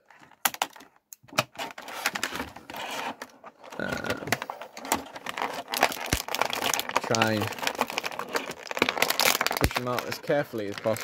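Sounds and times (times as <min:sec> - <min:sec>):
plastic blister tray crackling: 0:00.3 - 0:11.0.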